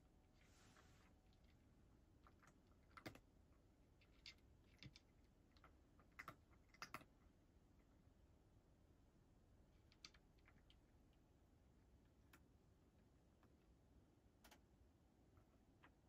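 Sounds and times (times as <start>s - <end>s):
cat eating crunches: 0.2s - 8.0s, 9.8s - 11.2s.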